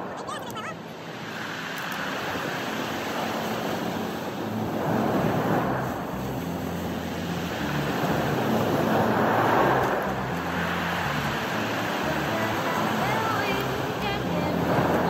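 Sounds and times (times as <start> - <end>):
waves breaking on cobbles: 1.1 - 15.0
low steady rumble: 4.2 - 15.0.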